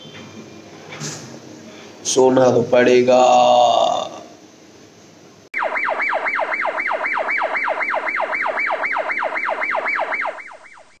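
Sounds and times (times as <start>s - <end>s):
electronic siren whoop: 5.6s - 11.0s.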